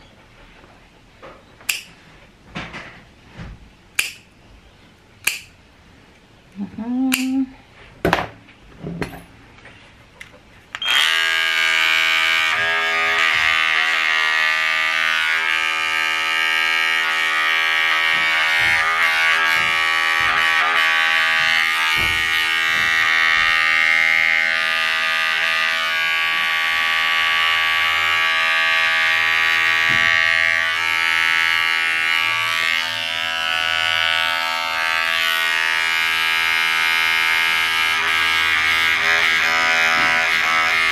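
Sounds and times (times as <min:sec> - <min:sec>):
pet nail clippers clicking: 0:01.7 - 0:01.9, 0:05.2 - 0:05.5, 0:07.1 - 0:07.4
nail grinder motor whine: 0:10.8 - 0:40.9.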